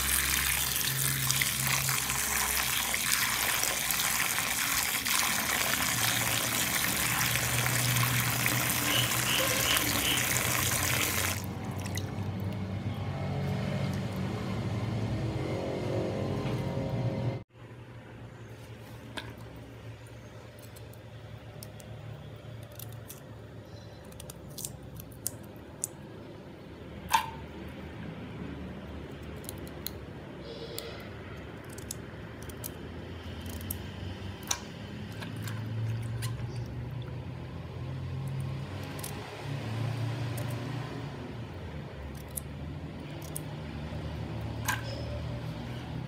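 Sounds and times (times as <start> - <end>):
hands rubbing potatoes in water: 0.0 - 12.5.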